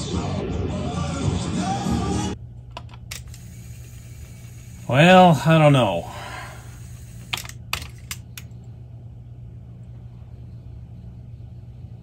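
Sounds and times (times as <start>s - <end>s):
cassette deck humming: 2.4s - 9.0s
cassette mechanism clicks: 2.7s - 3.6s.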